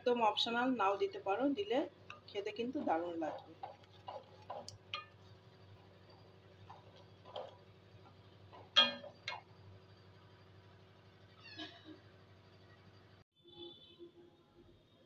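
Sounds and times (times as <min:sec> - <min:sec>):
spatula stirring thick chutney: 0:02.6 - 0:08.8.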